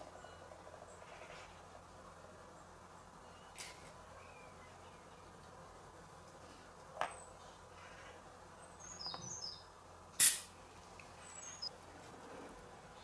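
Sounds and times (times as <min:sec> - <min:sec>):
short sharp burst of noise: 0:10.2 - 0:10.6.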